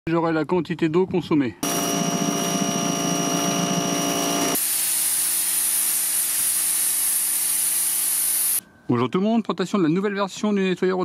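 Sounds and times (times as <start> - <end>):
high-pressure water jet hissing: 1.6 - 8.6
rotary surface cleaner whine: 1.6 - 8.6.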